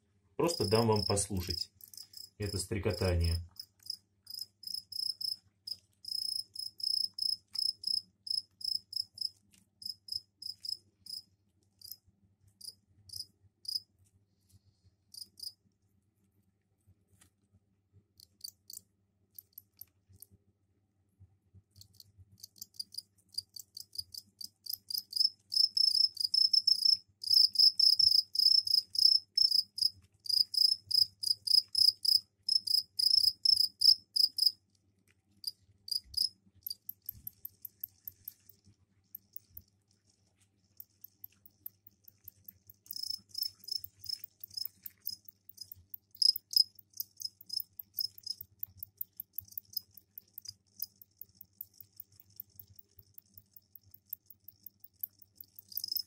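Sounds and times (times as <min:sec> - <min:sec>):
crickets chirping: 0:00.5 - 0:01.2, 0:06.0 - 0:11.2, 0:24.7 - 0:34.6, 0:35.9 - 0:38.5, 0:40.8 - 0:48.4, 0:49.1 - 0:56.0.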